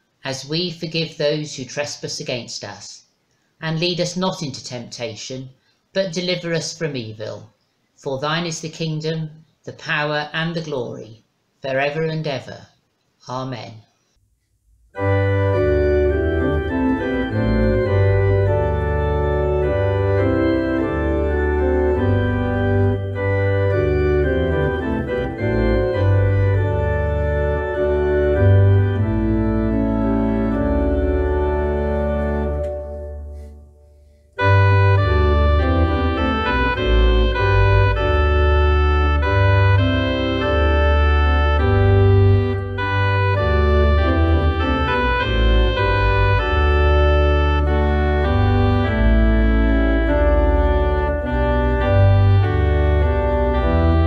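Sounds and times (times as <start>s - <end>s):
organ playing held chords: 14.9s - 54.0s.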